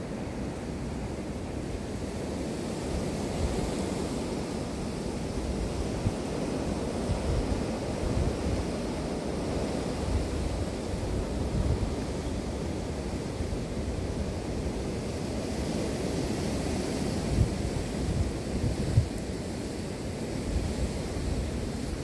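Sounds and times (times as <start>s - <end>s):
gusty wind buffeting microphone: 4.5s - 22.0s.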